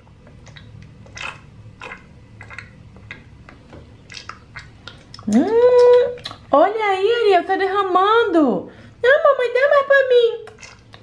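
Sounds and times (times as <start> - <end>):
sipping and slurping clicks: 10.5 - 11.0.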